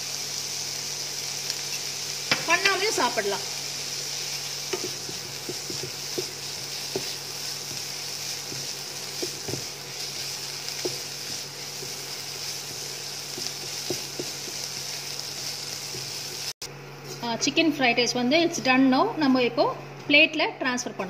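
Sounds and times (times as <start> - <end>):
food frying hiss: 0.0 - 17.2
spatula scraping and knocking pan: 4.7 - 14.8.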